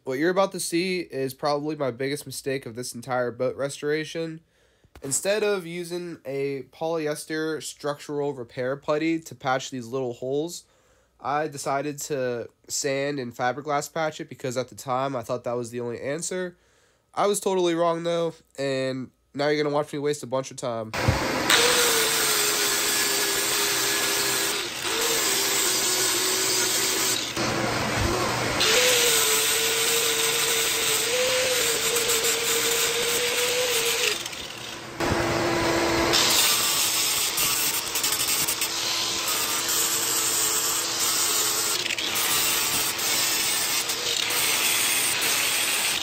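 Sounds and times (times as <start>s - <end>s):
power sander whining: 21.0s - 46.0s.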